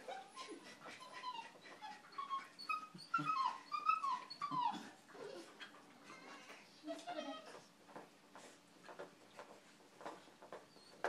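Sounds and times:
dog whining cries: 0.0s - 5.6s.

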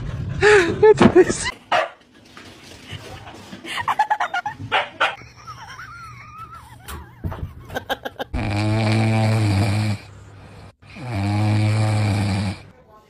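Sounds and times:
dog snoring: 8.3s - 12.7s.

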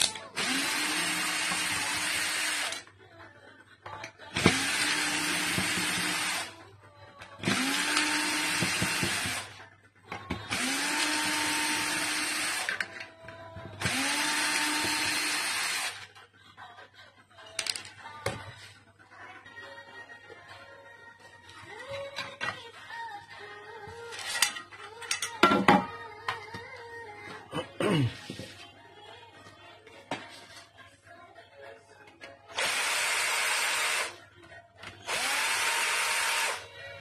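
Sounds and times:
cordless drill motor whirring: 0.4s - 2.8s, 4.4s - 6.5s, 7.4s - 9.5s, 10.5s - 12.8s, 13.8s - 16.0s, 32.6s - 34.1s, 35.1s - 36.6s.

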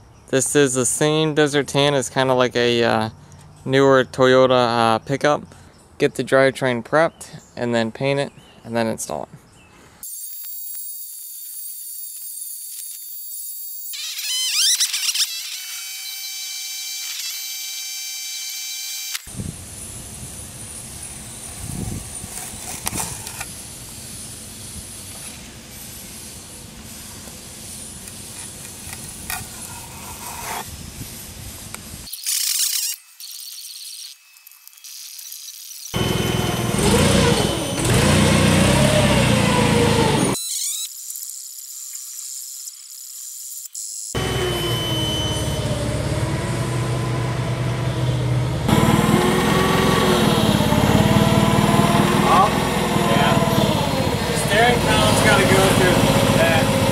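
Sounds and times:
steady hiss: 19.3s - 32.2s
loud high hiss burst: 23.5s - 28.4s
engine running: 36.0s - 40.4s, 44.2s - 56.9s
faint high whine: 44.2s - 46.4s.

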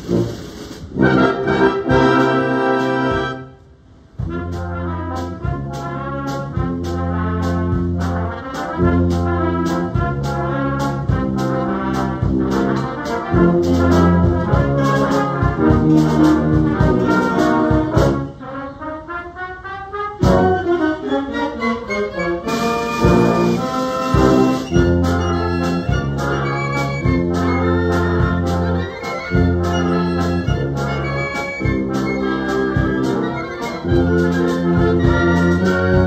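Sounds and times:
concert band playing: 0.0s - 3.5s, 4.2s - 18.4s, 20.2s - 36.0s.

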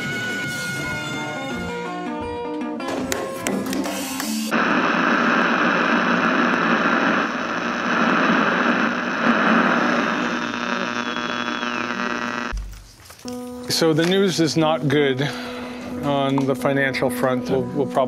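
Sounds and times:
steady electronic tones: 4.5s - 12.5s
electronic hum: 4.5s - 12.6s
static-like electronic noise: 4.5s - 12.6s.

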